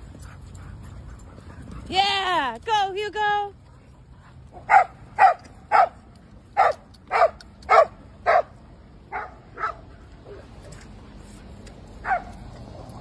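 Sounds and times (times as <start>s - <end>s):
dog barking: 4.6s - 6.0s, 6.6s - 8.5s, 9.1s - 9.8s, 12.0s - 12.3s.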